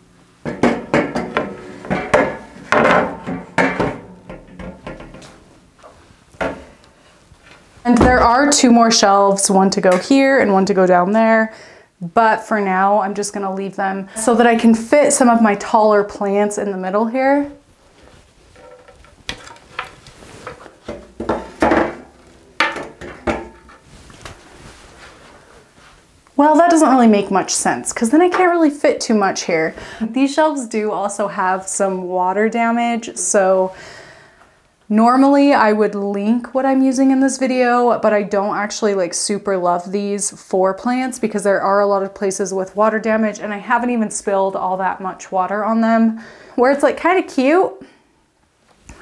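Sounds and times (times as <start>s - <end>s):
shelf boards knocking and scraping: 0.4s - 5.5s, 18.6s - 23.8s.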